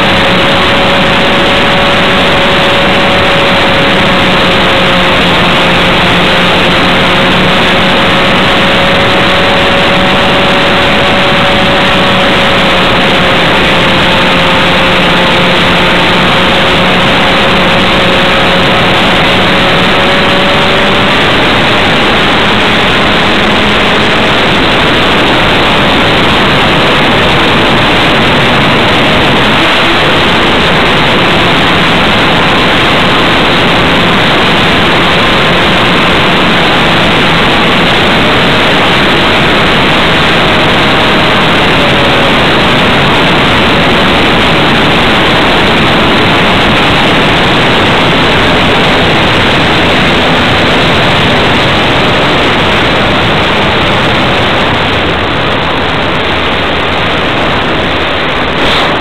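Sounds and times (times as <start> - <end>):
wind noise rushing: 0.0 - 59.0.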